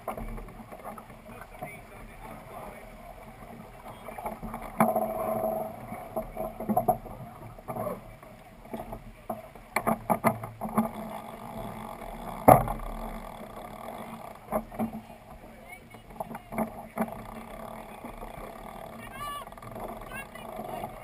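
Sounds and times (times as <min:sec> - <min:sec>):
deck gear clicks and knocks: 0:12.4 - 0:13.0.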